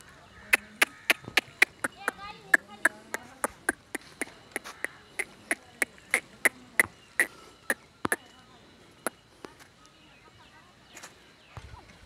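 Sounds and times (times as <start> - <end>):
footsteps on hard ground: 0.6 - 7.4.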